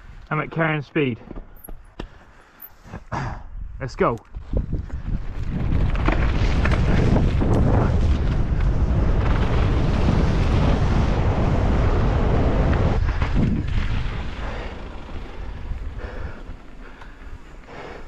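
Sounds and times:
wind buffeting microphone: 0:03.4 - 0:18.0
bike tyres rumbling over mud: 0:04.4 - 0:18.0.

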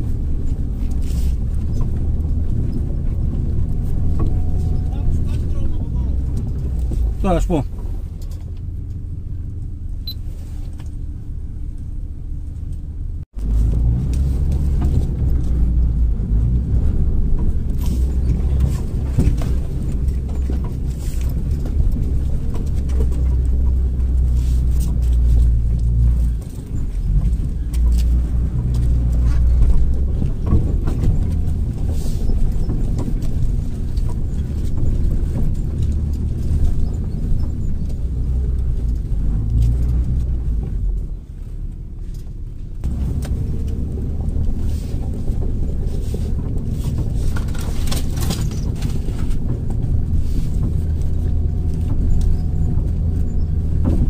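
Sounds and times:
knocks and rattles from bumps: 0:00.0 - 0:09.6, 0:12.5 - 0:41.2, 0:42.0 - 0:54.0
off-road vehicle engine in low gear: 0:00.0 - 0:54.0.

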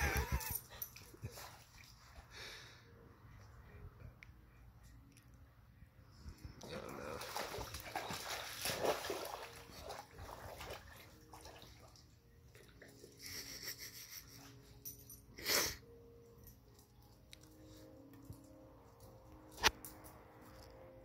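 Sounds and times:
dogs splashing in muddy water: 0:06.9 - 0:12.1.

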